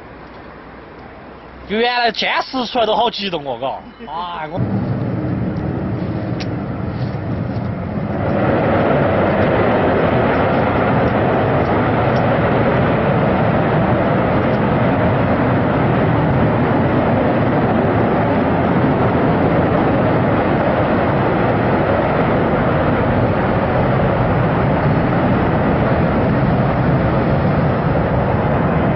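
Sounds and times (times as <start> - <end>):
jet engine roaring: 0.0 - 28.9.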